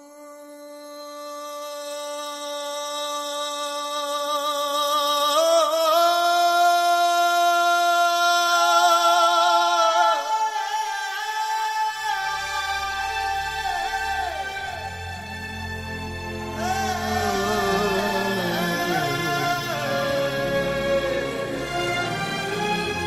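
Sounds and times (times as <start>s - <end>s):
solo voice singing: 0.0s - 15.5s, 16.3s - 23.0s.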